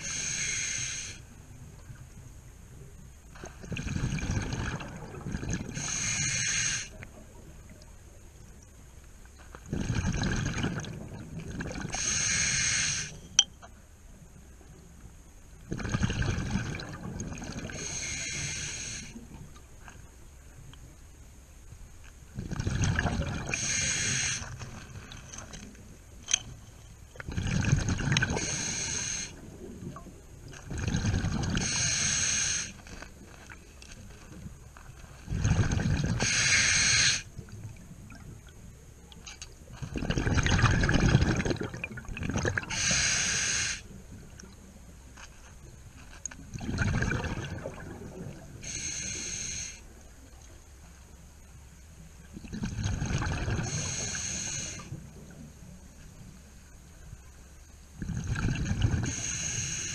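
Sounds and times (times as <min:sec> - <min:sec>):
diver breathing through regulator: 0:00.0 - 0:01.2, 0:05.8 - 0:07.0, 0:11.9 - 0:13.2, 0:17.7 - 0:19.2, 0:23.5 - 0:24.6, 0:28.3 - 0:29.4, 0:31.5 - 0:32.8, 0:36.1 - 0:37.3, 0:42.7 - 0:43.9, 0:48.6 - 0:49.9, 0:53.5 - 0:55.0, 0:58.2 - 0:59.9.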